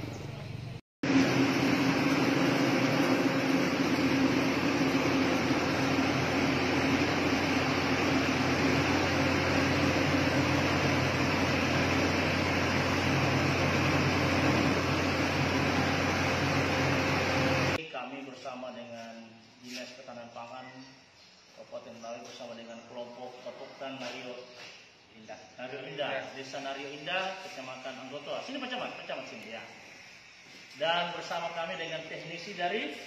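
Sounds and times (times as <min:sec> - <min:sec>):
mill machine droning: 0:00.0 - 0:17.8.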